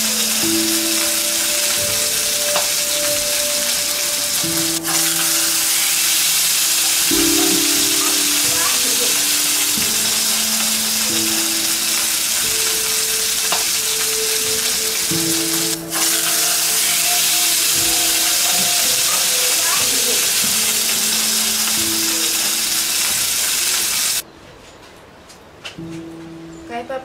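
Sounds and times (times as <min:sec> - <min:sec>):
food sizzling in frying pan: 0:00.0 - 0:24.2
background music with held notes: 0:00.0 - 0:24.3, 0:25.6 - 0:27.0.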